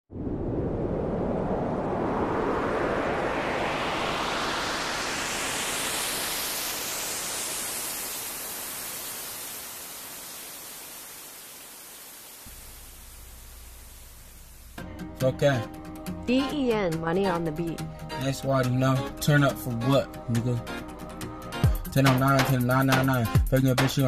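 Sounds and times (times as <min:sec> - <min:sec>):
white-noise riser sweep: 0:00.1 - 0:14.8.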